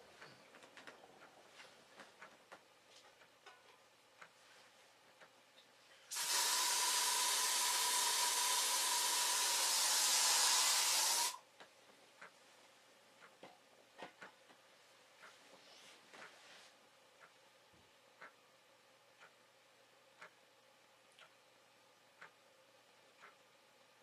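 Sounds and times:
loud hiss with thin tone: 0:06.0 - 0:11.4.

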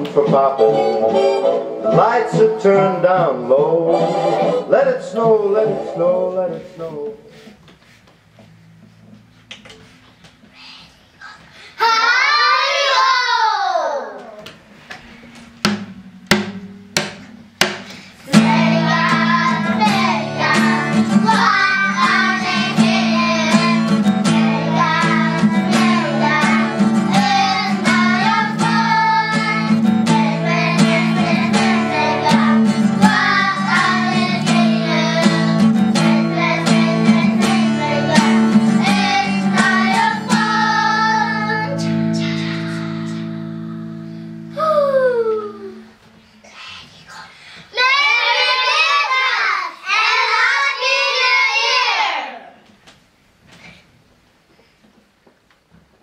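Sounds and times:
children singing together: 0:00.0 - 0:06.3, 0:11.8 - 0:14.4, 0:18.2 - 0:43.4, 0:47.7 - 0:52.5
instrumental accompaniment: 0:00.0 - 0:07.0, 0:15.1 - 0:44.2
struck notes: 0:00.0 - 0:07.3.

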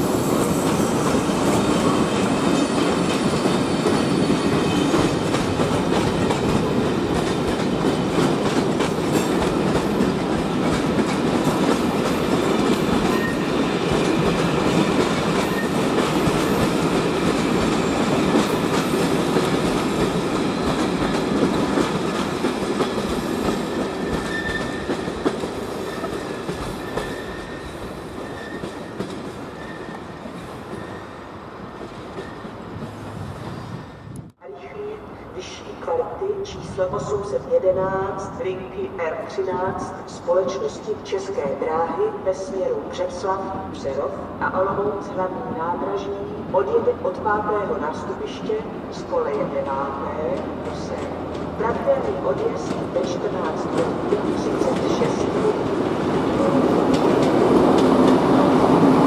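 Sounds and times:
train wheels rumbling: 0:00.0 - 0:34.4, 0:49.9 - 0:59.0.

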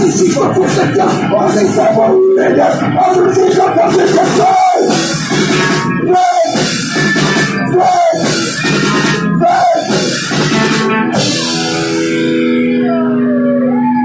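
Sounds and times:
rock band playing: 0:00.0 - 0:14.0.

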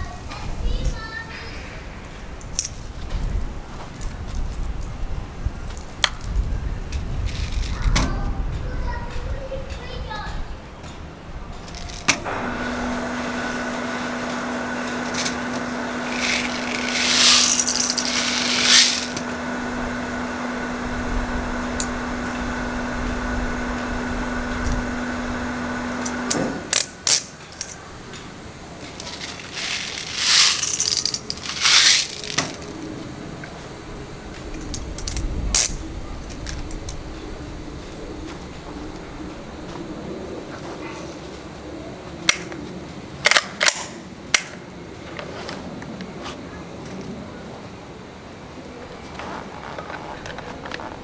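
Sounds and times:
steady hum: 0:11.1 - 0:43.3.

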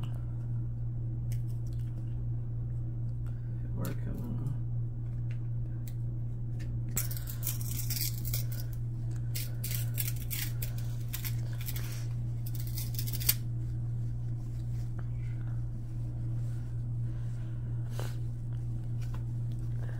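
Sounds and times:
steady low hum: 0:00.0 - 0:19.9
cards rubbing and swishing: 0:07.0 - 0:17.3.

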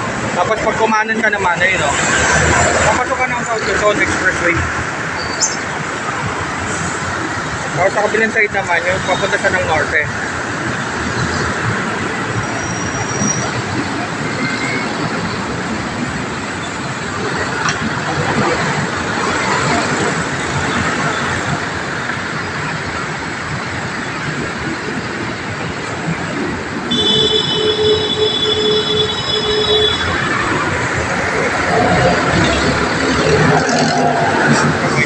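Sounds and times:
road traffic roar: 0:00.0 - 0:35.0
high squeal of steady tones: 0:12.4 - 0:15.5, 0:26.9 - 0:32.7.

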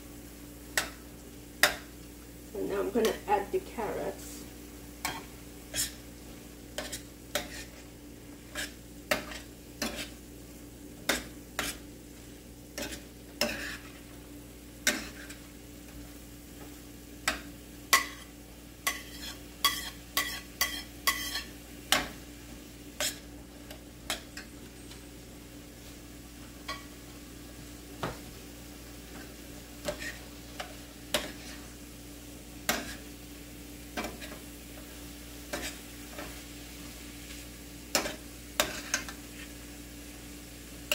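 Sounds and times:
light sizzle: 0:00.0 - 0:40.9
metal spoon scraping frying pan: 0:05.0 - 0:06.0, 0:06.8 - 0:07.8, 0:08.5 - 0:10.2, 0:11.1 - 0:11.8, 0:12.7 - 0:14.0, 0:14.8 - 0:15.4, 0:17.9 - 0:22.1, 0:23.0 - 0:23.3, 0:29.8 - 0:31.6, 0:32.7 - 0:33.0, 0:35.5 - 0:36.4, 0:37.9 - 0:39.2.

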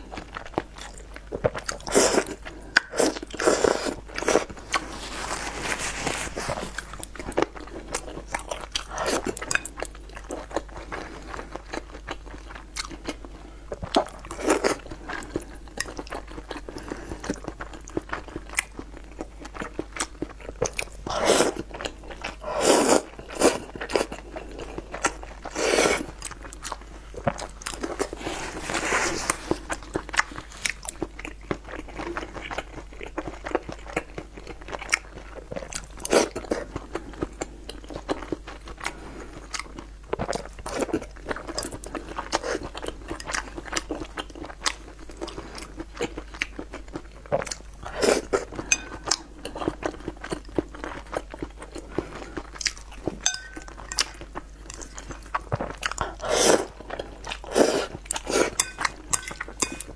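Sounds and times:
chewing and biting food: 0:00.0 - 0:59.9
slurping noodles: 0:56.1 - 0:56.8.

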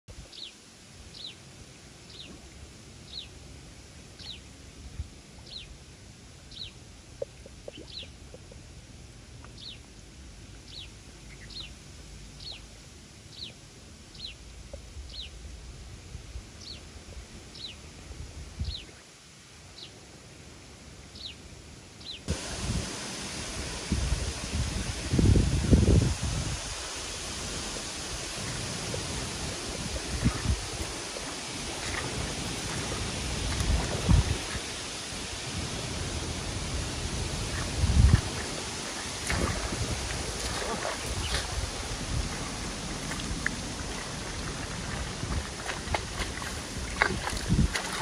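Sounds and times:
steady low rumble: 0:02.7 - 0:18.9, 0:22.3 - 0:48.0
loud hiss: 0:22.3 - 0:45.4.

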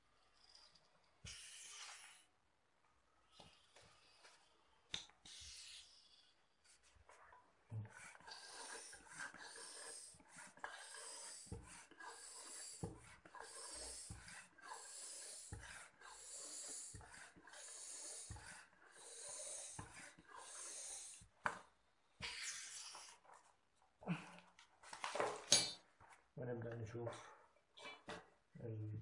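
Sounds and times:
hand air pump hissing: 0:05.2 - 0:06.2, 0:07.9 - 0:21.3.

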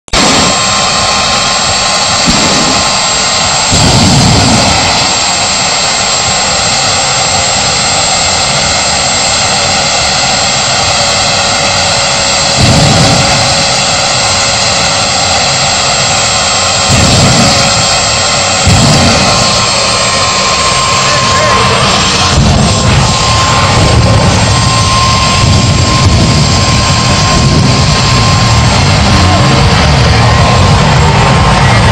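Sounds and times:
gas turbine whining: 0:00.1 - 0:31.9
deep whooshes of flame: 0:02.2 - 0:05.6, 0:16.5 - 0:31.9.

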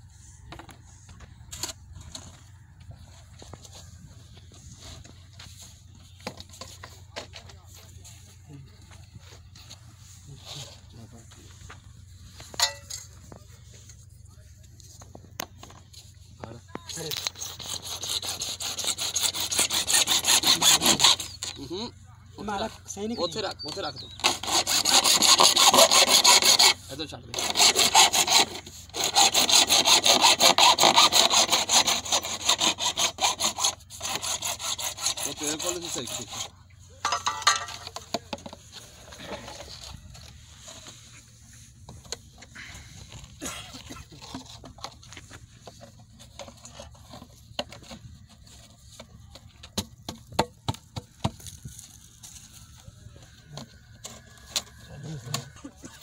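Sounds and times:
hacksaw cutting plastic pipe: 0:06.1 - 0:07.5, 0:12.5 - 0:13.4, 0:15.4 - 0:21.8, 0:23.3 - 0:40.9, 0:41.9 - 0:52.1, 0:53.5 - 0:55.6.

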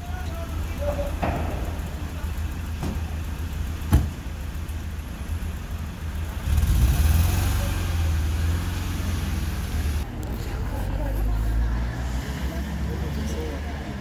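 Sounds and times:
ambulance engine running: 0:00.0 - 0:14.0
vehicle door slamming: 0:00.4 - 0:04.6.

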